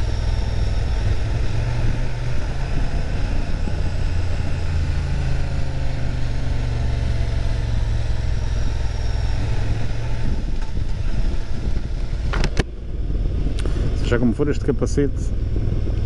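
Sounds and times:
motorcycle engine low rumble: 0.0 - 16.0.

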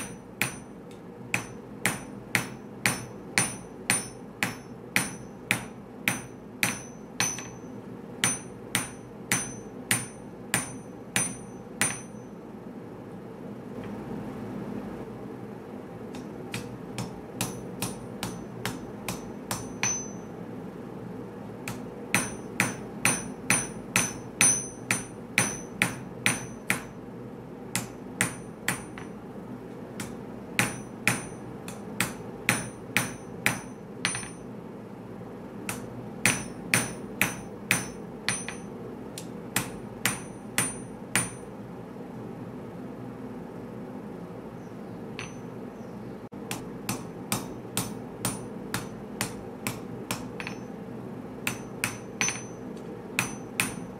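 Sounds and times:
hammer ringing on anvil: 0.0 - 12.3, 16.6 - 20.3, 22.1 - 26.9, 30.6 - 31.4, 32.0 - 34.5, 35.7 - 38.7, 39.6 - 41.5, 45.2 - 45.6, 50.1 - 50.8, 51.5 - 53.9.

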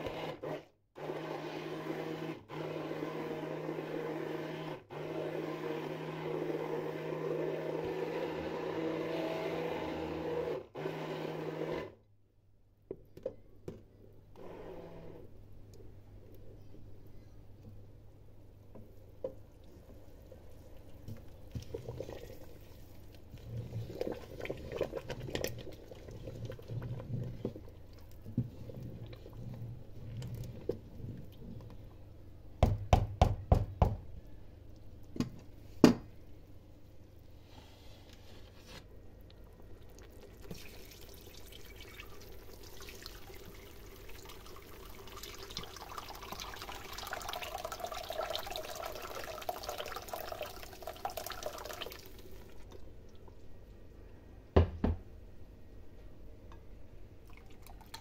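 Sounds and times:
fat bubbling and popping: 20.9 - 31.7
hot fat pouring and splashing: 39.9 - 52.7.

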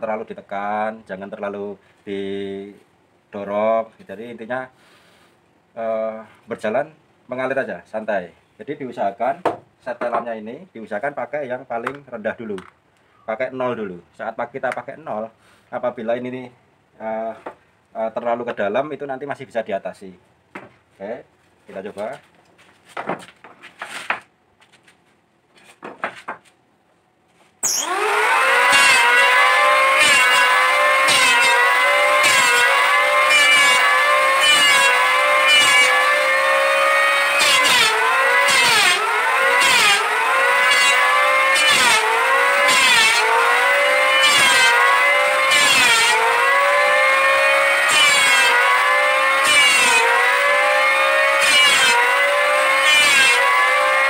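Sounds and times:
electric hand planer whine: 27.6 - 54.0
planer blades rasping wood: 27.6 - 54.0.

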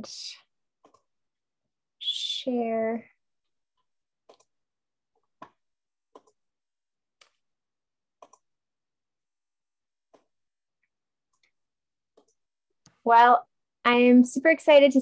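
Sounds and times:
computer mouse clicks: 0.8 - 1.1, 4.2 - 4.5, 5.3 - 6.4, 8.2 - 8.5, 11.3 - 13.0.

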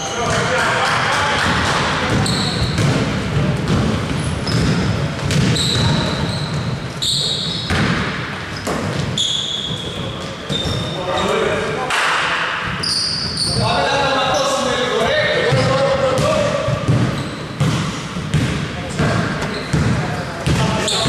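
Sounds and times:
players' voices: 0.0 - 7.6, 8.2 - 21.0
basketball bouncing: 1.4 - 6.8, 7.5 - 10.8, 15.5 - 21.0
sneakers squeaking on court: 1.4 - 11.6, 12.5 - 21.0.

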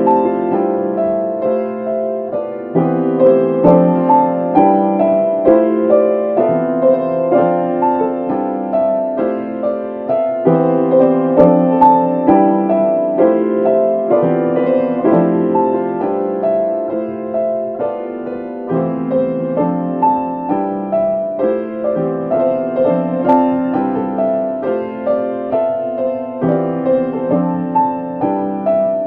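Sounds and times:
piano repeating figure: 0.0 - 29.0.

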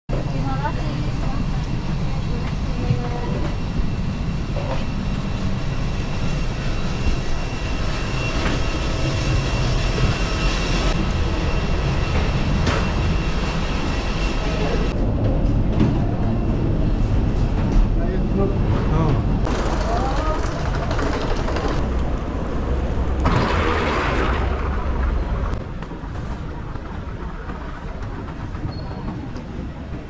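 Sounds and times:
high-pitched whine: 0.1 - 20.4
mechanical rumble: 0.1 - 30.0.

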